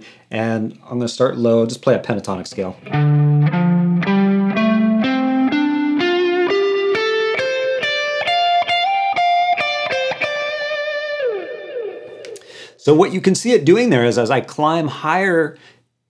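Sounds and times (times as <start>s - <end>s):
electric guitar playing a scale: 2.8s - 12.5s.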